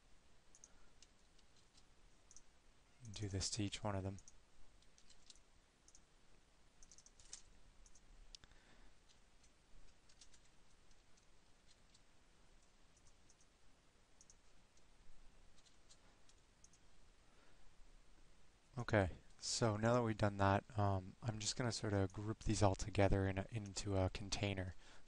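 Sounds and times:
mouse and keyboard clicks: 6.8 - 8.0.

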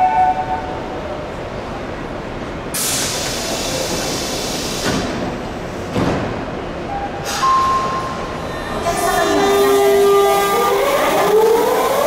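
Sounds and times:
train inverter high tone: 0.0 - 1.0, 6.9 - 12.0
pneumatic air hiss: 2.8 - 5.2, 7.2 - 7.6
train doors thudding shut: 4.0 - 8.2.

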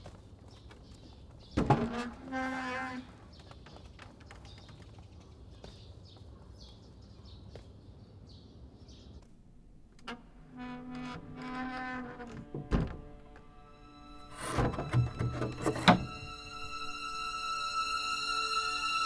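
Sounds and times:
door creaking open: 1.6 - 3.1, 9.8 - 17.1.

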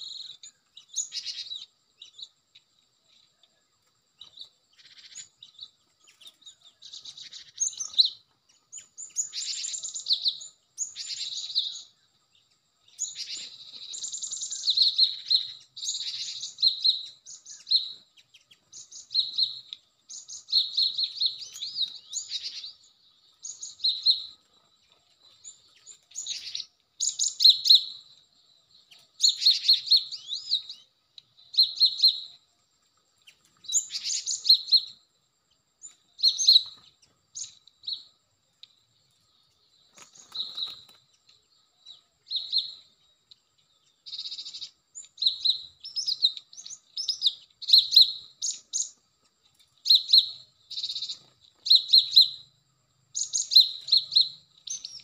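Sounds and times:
birds chirping sharply: 39.3 - 42.9.

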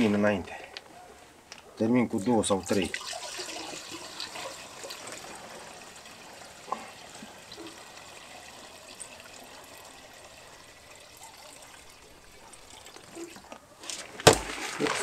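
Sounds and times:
liquid pouring into plastic tank: 2.6 - 13.4.

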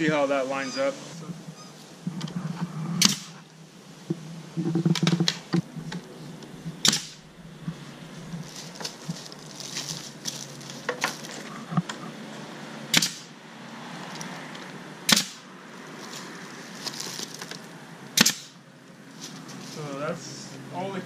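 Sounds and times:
nail gun firing: 3.0 - 3.3, 6.8 - 7.2, 12.9 - 13.3, 15.1 - 15.4, 18.2 - 18.6.

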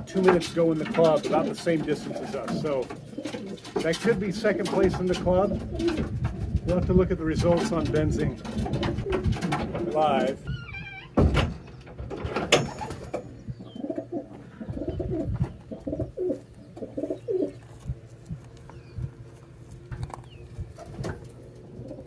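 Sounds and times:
pigeons cooing: 0.0 - 10.8, 11.6 - 22.0.

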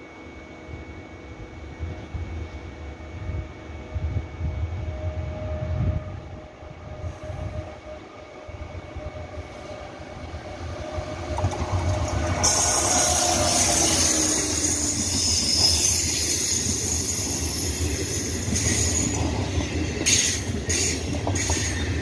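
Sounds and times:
train wheels rumbling on rails: 3.3 - 22.0
loud hiss: 12.4 - 19.1.

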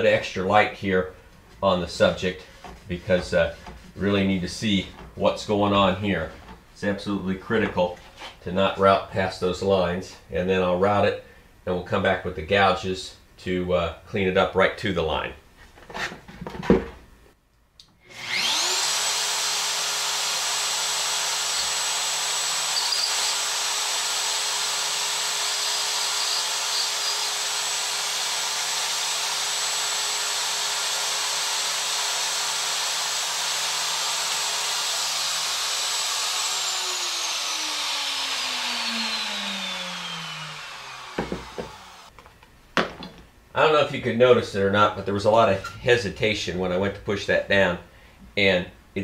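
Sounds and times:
router motor whining: 18.0 - 42.1.

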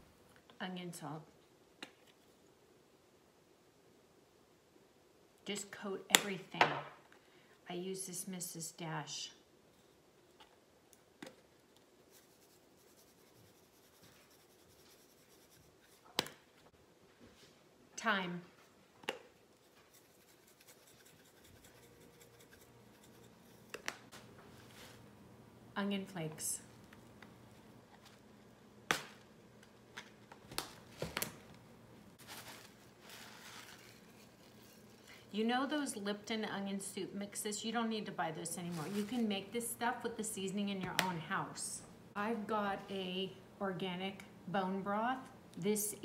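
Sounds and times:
flakes pouring rustle: 32.2 - 34.7.

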